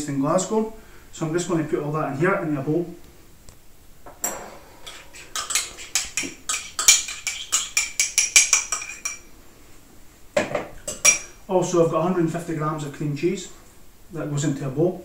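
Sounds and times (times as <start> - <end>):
spoon scraping and clinking bowl: 4.2 - 9.3.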